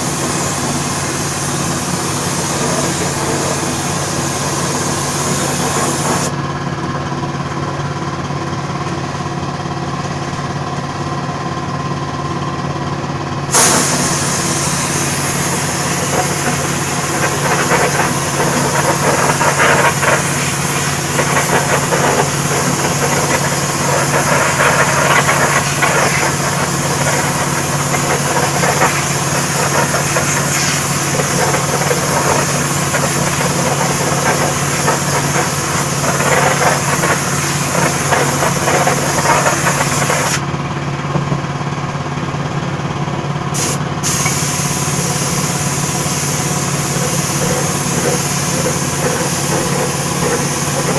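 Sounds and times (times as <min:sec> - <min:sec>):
spray gun hissing: 0:00.0 - 0:06.3, 0:13.5 - 0:40.4, 0:43.6 - 0:50.9
motor humming: 0:44.3 - 0:50.9.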